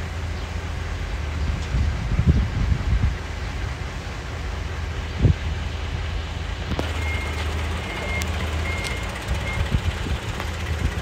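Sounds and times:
wind buffeting microphone: 1.1 - 4.0, 5.0 - 7.8, 8.6 - 11.0.

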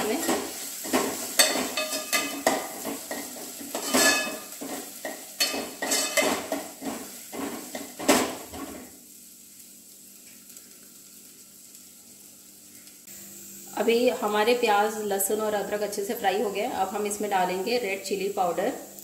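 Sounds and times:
food sizzling in oil: 0.0 - 19.0
spoon stirring and scraping pot: 0.2 - 8.8
spoon clinking against pot: 1.4 - 3.2.

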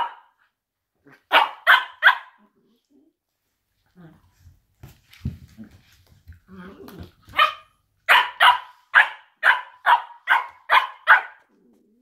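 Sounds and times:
dog barking: 0.0 - 0.4, 1.3 - 2.4, 7.3 - 11.5.

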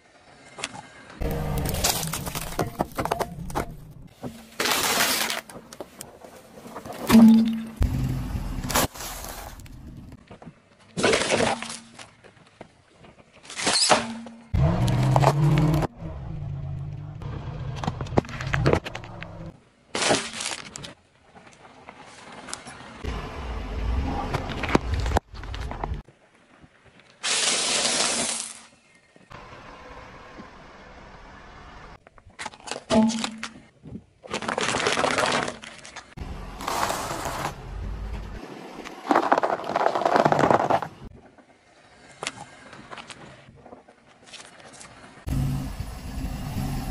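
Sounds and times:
car tyre crushing objects: 1.2 - 12.3, 13.4 - 15.9, 32.2 - 41.4
paper cups crunching: 34.2 - 37.5
tyre crushing packaging: 34.3 - 36.0.

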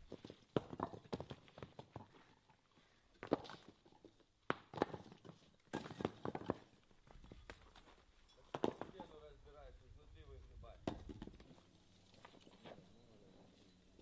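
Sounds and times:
rubble knocking and clattering: 0.0 - 2.5, 3.2 - 7.8, 8.4 - 9.1, 10.8 - 11.6.

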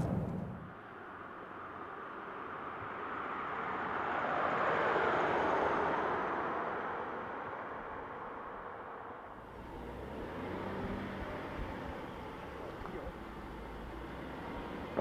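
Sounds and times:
car driving past on asphalt: 9.4 - 15.0.

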